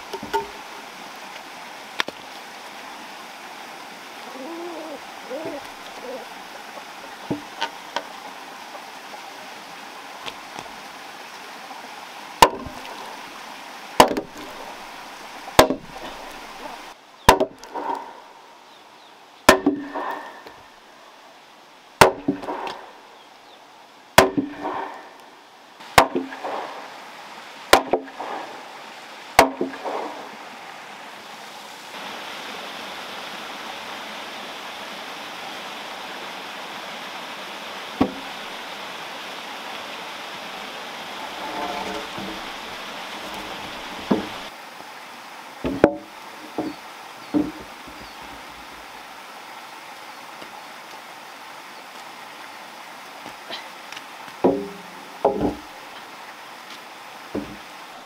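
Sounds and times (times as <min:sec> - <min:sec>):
heavy wooden knocks: 0:14.0 - 0:16.5, 0:22.0 - 0:22.8, 0:24.2 - 0:25.0, 0:29.4 - 0:30.3, 0:41.4 - 0:44.5, 0:45.6 - 0:48.5, 0:54.4 - 0:55.7, 0:57.3 - 0:57.6.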